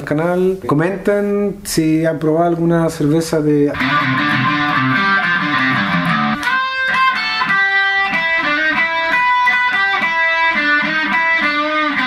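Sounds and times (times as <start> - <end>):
electric guitar picked notes: 3.8 - 12.0.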